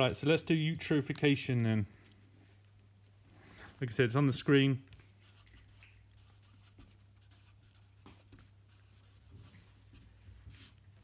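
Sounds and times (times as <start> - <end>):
marker pen scratching on paper: 5.2 - 10.8.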